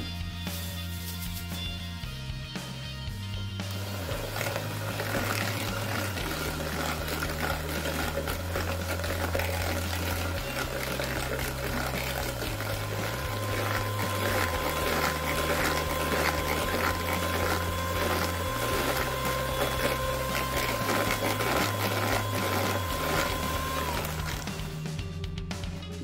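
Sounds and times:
beaters rattling in plastic bowl: 3.6 - 24.8
electric hand mixer whirring: 3.6 - 24.8.

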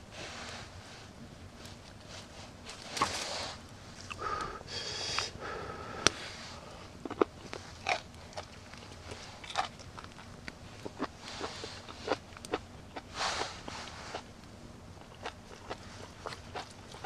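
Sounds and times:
rustling and scraping close to microphone: 0.0 - 4.1, 7.4 - 12.2, 13.1 - 14.3.

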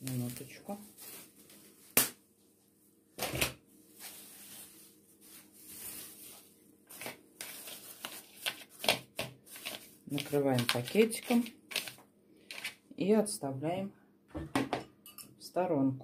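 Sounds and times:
plastic bag rustling and crinkling: 0.0 - 2.0, 3.8 - 12.8.

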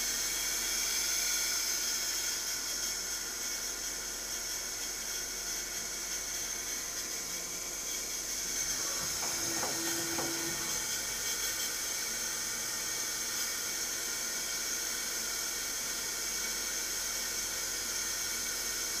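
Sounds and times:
lathe running with high hiss: 0.0 - 19.0
short low hum: 8.7 - 11.1.

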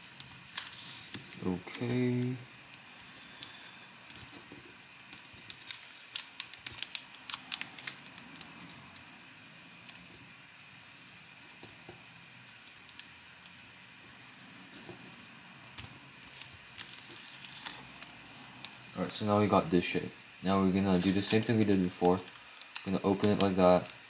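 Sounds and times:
paper being folded and creased: 0.0 - 2.2, 16.3 - 18.8, 20.8 - 23.9.

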